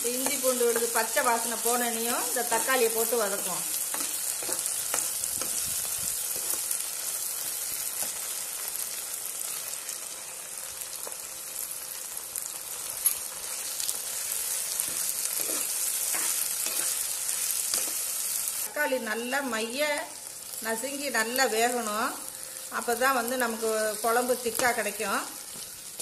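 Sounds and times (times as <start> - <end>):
vegetables sizzling in hot oil: 0.0 - 26.0
spoon scraping a pan: 3.7 - 6.7, 14.8 - 18.2.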